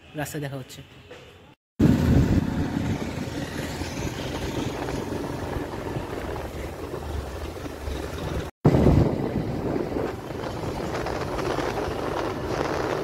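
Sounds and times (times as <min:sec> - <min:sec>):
motorcycle engine rumble: 0:01.8 - 0:13.0
wind buffeting microphone: 0:01.8 - 0:13.0.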